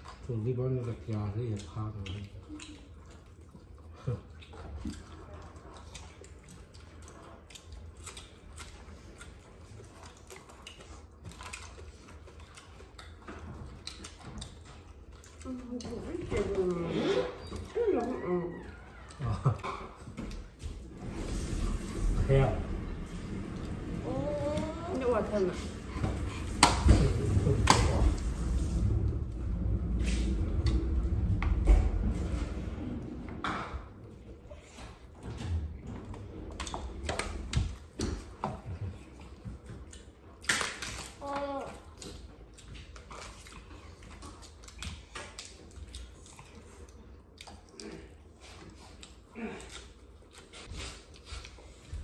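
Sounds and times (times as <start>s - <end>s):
chewing: 0.0s - 52.0s
low steady hum: 0.0s - 52.0s
chewing clicks and taps: 4.3s - 16.1s.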